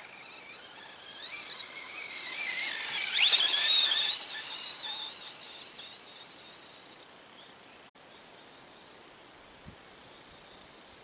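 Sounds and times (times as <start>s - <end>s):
rc car electric motor whining: 0.0s - 7.9s.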